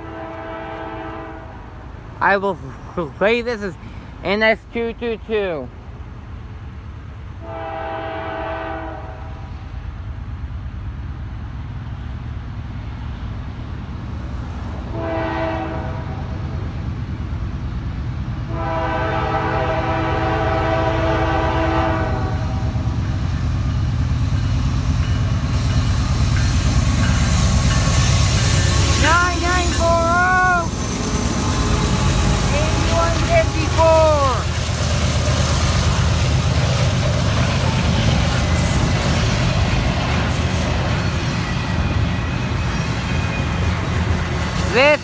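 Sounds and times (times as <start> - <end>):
locomotive air horn blasts: 0.0 - 1.6, 7.4 - 9.5, 14.9 - 16.2, 18.5 - 22.8.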